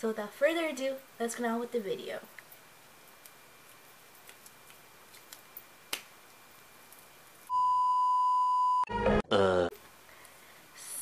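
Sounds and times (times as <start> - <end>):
electronic test tone beep: 7.5 - 9.2.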